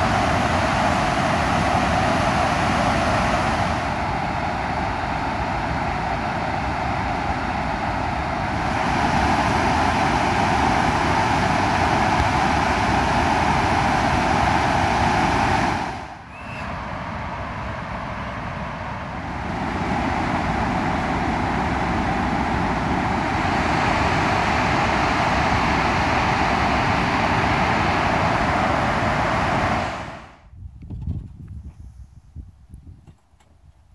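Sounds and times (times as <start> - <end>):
water roaring over spillway: 0.0 - 30.4.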